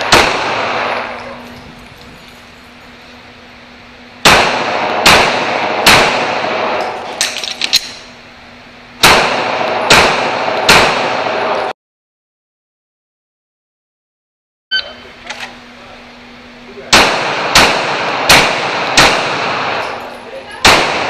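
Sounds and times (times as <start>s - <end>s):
pistol shots echoing indoors: 0.0s - 1.2s, 4.2s - 7.7s, 9.0s - 11.7s, 16.9s - 20.0s, 20.6s - 21.0s.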